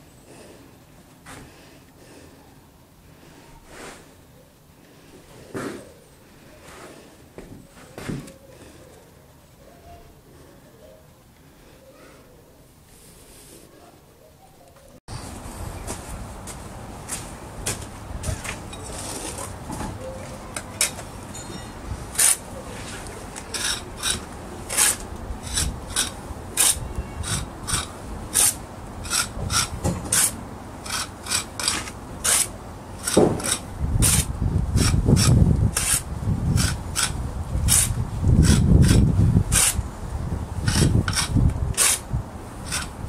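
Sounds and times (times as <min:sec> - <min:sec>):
trowel scraping mortar joints: 0:20.5 - 0:39.8, 0:40.6 - 0:43.0.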